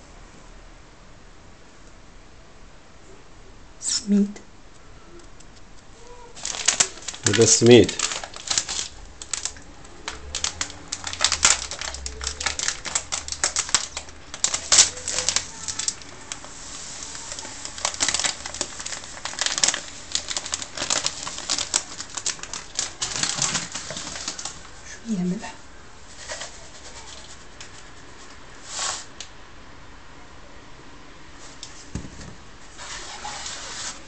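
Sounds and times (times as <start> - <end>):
plastic bag crinkling: 6.2 - 24.9.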